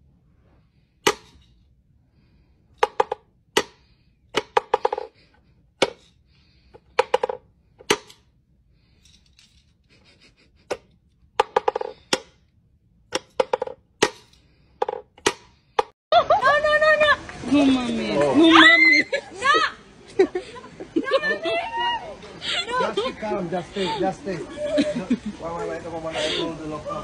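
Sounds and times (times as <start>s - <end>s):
wooden toy knocking: 2.8s - 5.2s, 6.8s - 8.2s, 11.4s - 12.4s, 13.1s - 15.9s.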